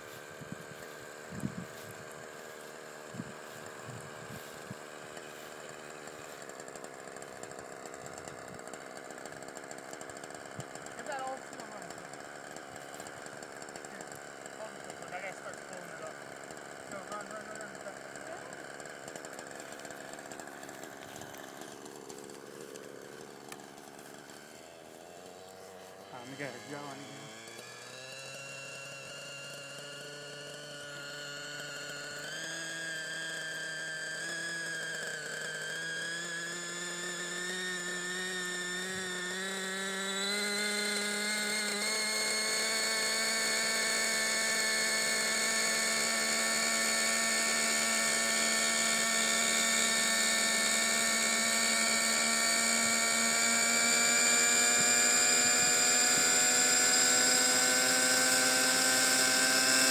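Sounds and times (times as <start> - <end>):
model helicopter engine spooling up: 0.0 - 59.9.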